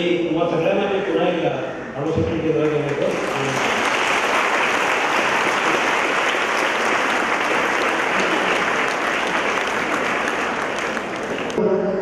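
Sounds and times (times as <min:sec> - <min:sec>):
audience applauding: 0:02.6 - 0:11.6.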